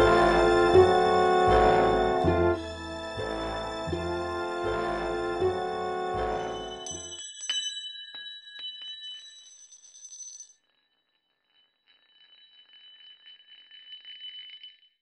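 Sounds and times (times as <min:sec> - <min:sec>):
high bell-like ringing tones: 0:00.0 - 0:15.0
faint fluttering high ringing: 0:06.5 - 0:15.0.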